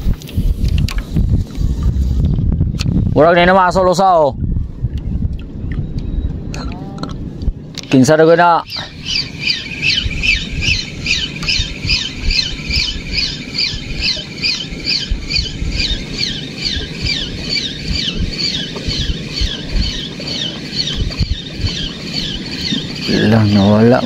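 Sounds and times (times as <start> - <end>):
wind rumble on microphone: 0.0 - 24.0
fishing reel squeaking: 8.6 - 24.0.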